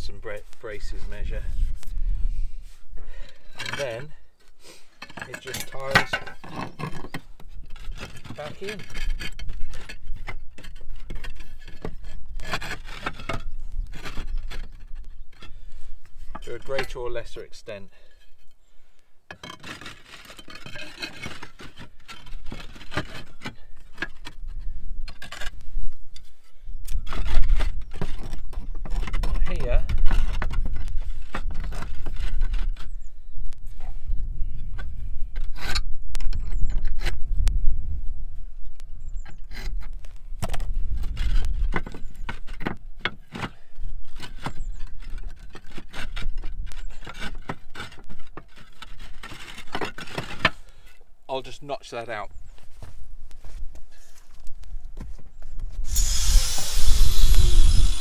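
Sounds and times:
roof tiles scraping and clicking: 3.1 - 18.6, 19.3 - 33.0, 39.2 - 51.1.

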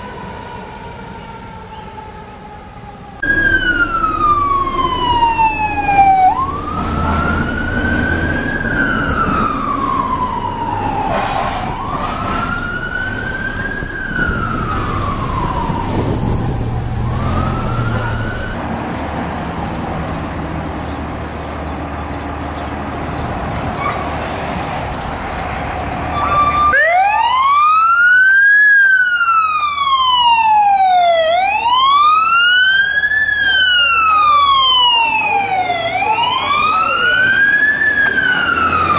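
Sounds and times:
fire engine siren wailing: 0.0 - 18.6, 25.7 - 38.9
street noise: 0.0 - 38.9
truck engine: 0.0 - 38.9.

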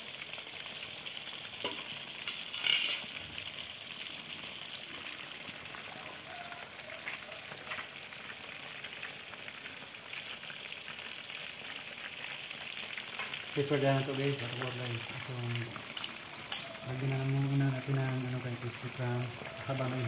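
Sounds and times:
chicken deep-frying in oil: 0.0 - 20.0.

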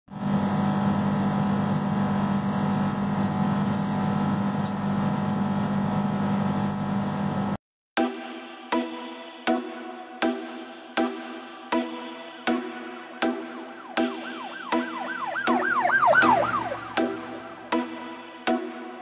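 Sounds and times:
laser cutter drone: 0.1 - 7.6, 14.0 - 18.1.

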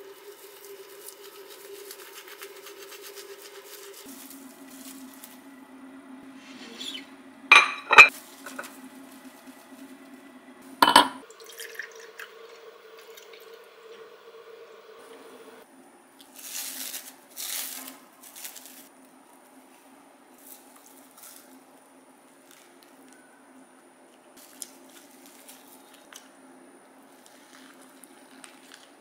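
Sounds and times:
plastic wrap crinkling: 0.1 - 5.4, 16.2 - 18.9, 24.4 - 26.3, 27.1 - 29.0
liquid pouring into glass: 10.8 - 14.0.

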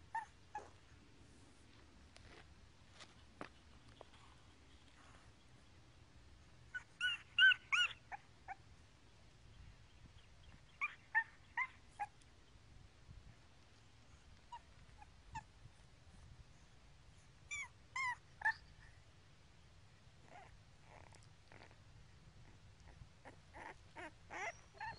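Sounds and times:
puppy whimpering: 0.1 - 0.8, 6.7 - 8.6, 10.7 - 12.2, 14.5 - 15.5, 17.5 - 18.8, 20.2 - 21.8, 22.4 - 24.9.

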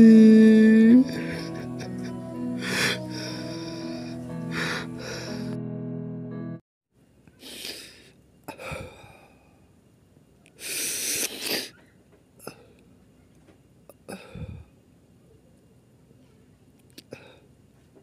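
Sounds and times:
man sobbing: 0.0 - 5.5
wheezy breaths and sniffs: 10.6 - 12.8.

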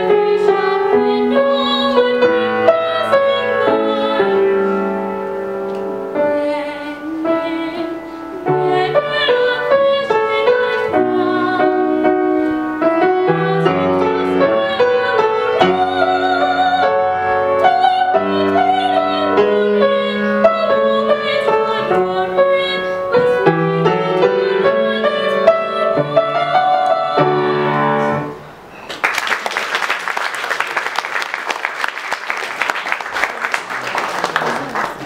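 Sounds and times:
girl singing classical style: 0.0 - 28.4
grand piano accompaniment: 0.0 - 28.9
audience applause: 28.9 - 35.0.

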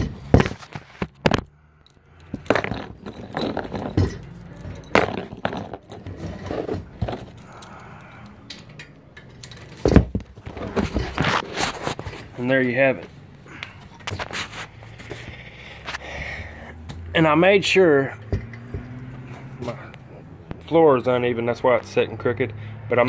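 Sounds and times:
knocks and scrapes: 0.0 - 7.7, 8.5 - 16.2, 18.0 - 20.7
chain links jangling: 1.5 - 11.1.

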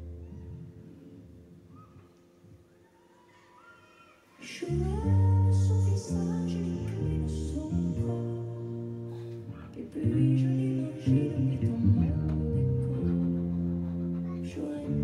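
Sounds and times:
electric bass guitar low notes: 0.0 - 1.4, 4.7 - 15.0
woman singing in recorded song: 4.4 - 15.0.

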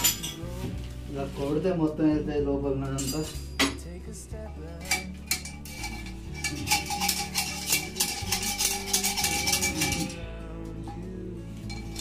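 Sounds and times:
metal rod scraping and rattling: 4.8 - 10.2, 10.8 - 12.0.

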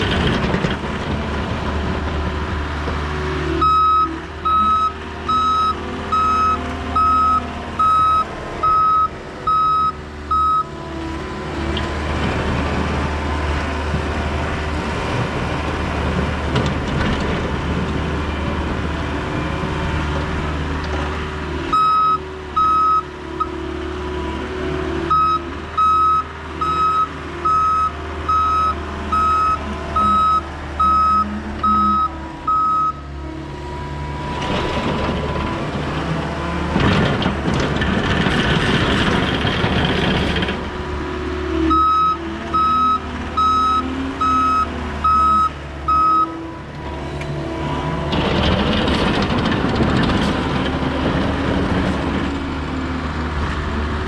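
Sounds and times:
diesel engine running: 0.0 - 54.0
reverse alarm beeping: 3.6 - 10.7, 25.1 - 33.0.

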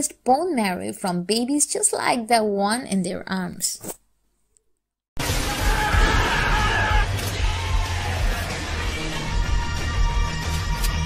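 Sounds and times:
music with strong bass: 6.7 - 11.0.

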